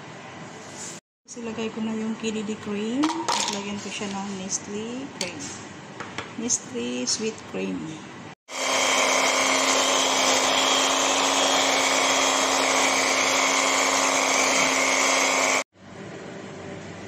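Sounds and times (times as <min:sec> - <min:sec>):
electric hand mixer whirring: 0:08.5 - 0:15.7.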